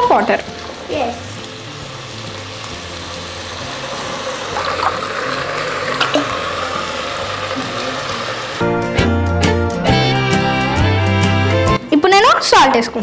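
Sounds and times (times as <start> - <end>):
water pouring and splashing: 0.0 - 8.8.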